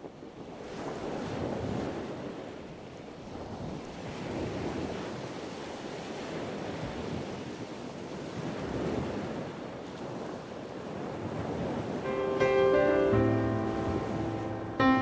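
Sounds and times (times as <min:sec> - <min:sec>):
wind buffeting microphone: 0:03.2 - 0:12.1
sea waves washing: 0:03.5 - 0:15.0.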